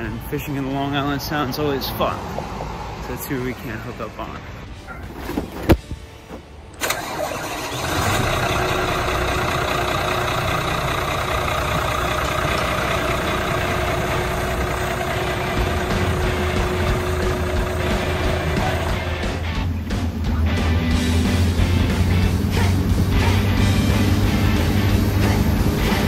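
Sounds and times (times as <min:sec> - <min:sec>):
boat engines idling: 0:06.2 - 0:26.0.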